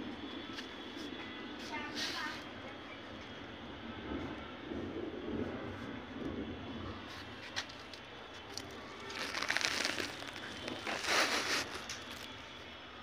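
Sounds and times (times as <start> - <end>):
leaves rustling and crackling: 7.6 - 12.7.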